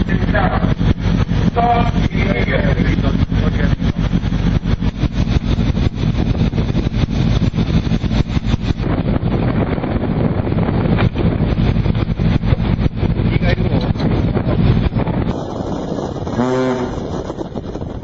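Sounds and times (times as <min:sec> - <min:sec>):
low engine drone: 0:00.0 - 0:18.0
wind buffeting microphone: 0:00.0 - 0:18.0.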